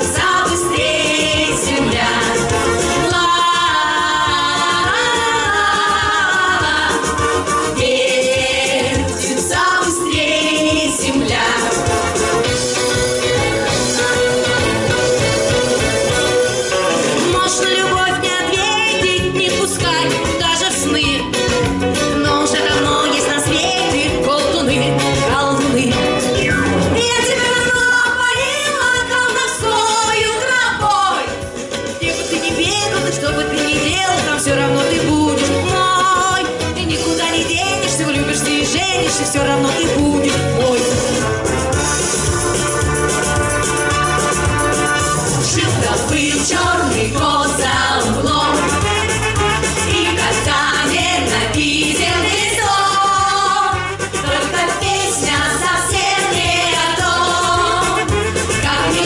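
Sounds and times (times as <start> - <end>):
women singing in harmony: 0.0 - 12.4, 13.4 - 15.1, 22.2 - 26.2, 27.0 - 31.3, 32.0 - 41.1, 45.5 - 48.9, 49.9 - 59.0
wind band playing: 41.2 - 45.8, 48.4 - 50.8, 53.6 - 54.6, 57.6 - 59.0.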